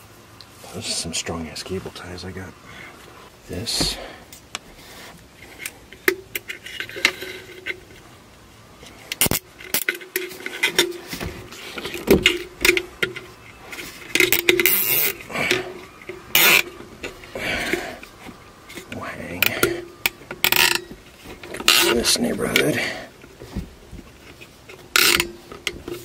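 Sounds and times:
cable tie rasping: 8.8s - 26.0s
cable ties clicking on fan housing: 9.1s - 10.9s.

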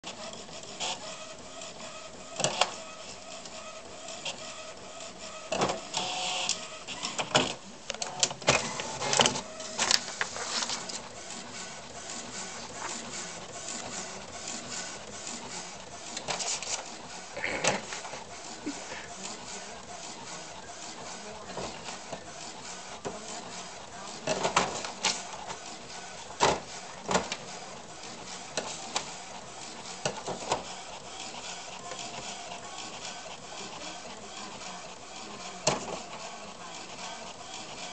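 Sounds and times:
printer whirring: 0.0s - 37.9s
paper rustling and tapping: 8.4s - 11.0s.

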